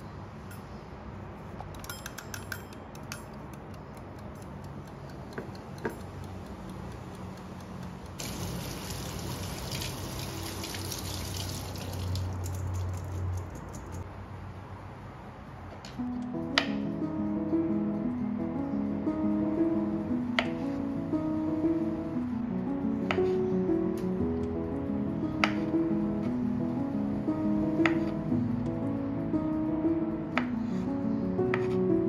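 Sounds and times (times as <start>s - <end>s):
kitchen timer clicks: 1.7s - 8.2s
tap water running: 8.2s - 13.4s.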